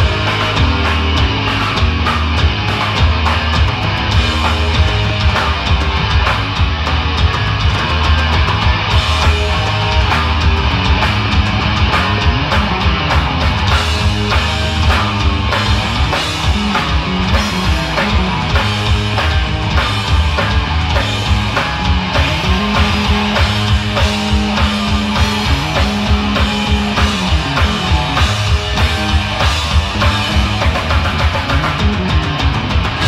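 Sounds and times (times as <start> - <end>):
bass guitar: 0.0 - 33.0
distorted electric guitars: 0.0 - 33.0
drum kit beat: 0.0 - 33.0.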